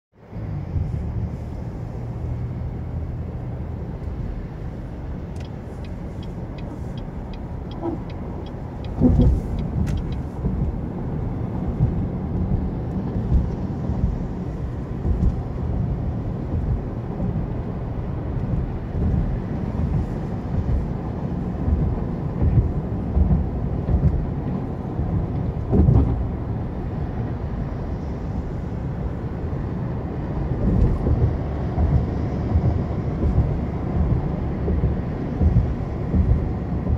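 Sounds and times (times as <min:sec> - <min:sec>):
car road and engine noise: 0:00.1 - 0:36.9
light ticks: 0:05.3 - 0:10.7.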